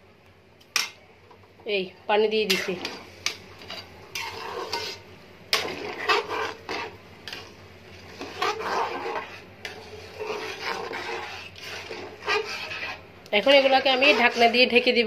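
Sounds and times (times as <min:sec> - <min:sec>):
metal spatula scraping a pan: 0:02.4 - 0:15.0.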